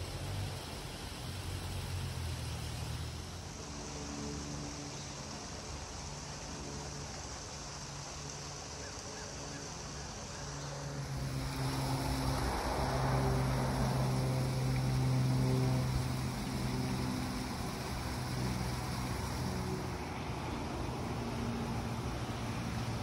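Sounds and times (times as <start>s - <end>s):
motor humming: 11.0s - 23.0s.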